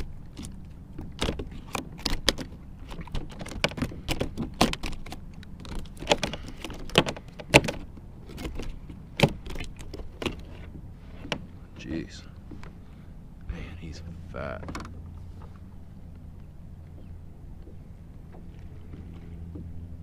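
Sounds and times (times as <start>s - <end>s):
fish thrashing against kayak: 0.0s - 11.6s.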